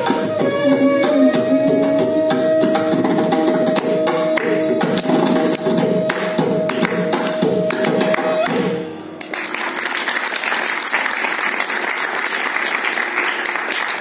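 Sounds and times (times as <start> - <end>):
hand drum strokes: 0.0 - 9.0
audience applause: 9.2 - 14.0.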